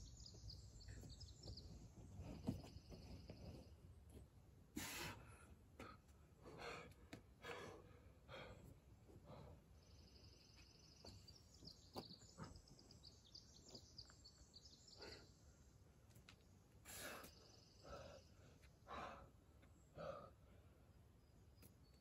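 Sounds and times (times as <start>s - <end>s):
bird chirping: 0.0s - 3.8s, 9.4s - 15.6s, 16.9s - 18.6s
heavy breathing: 4.8s - 9.7s.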